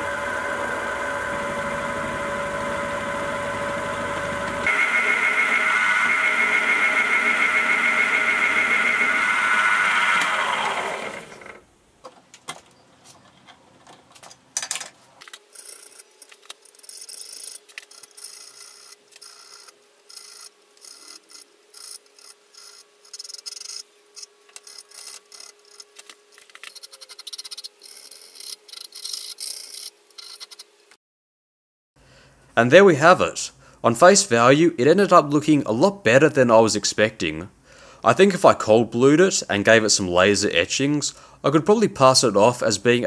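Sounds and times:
milling machine cutting: 0.0s - 11.6s.

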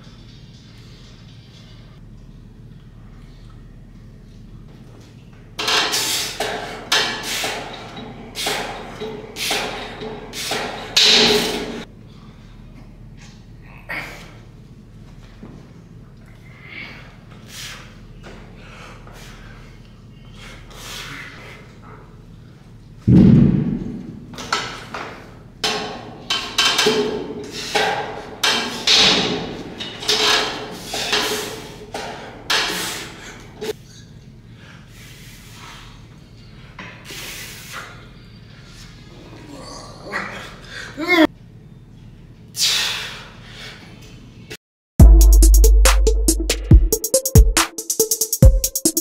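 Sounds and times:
weight machine clanking: 25.7s - 32.8s.

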